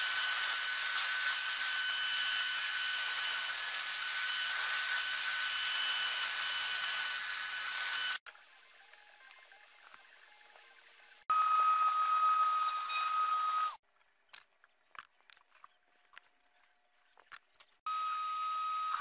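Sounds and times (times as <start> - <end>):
router spindle whining: 0.0 - 8.2, 11.3 - 13.8, 17.9 - 19.0.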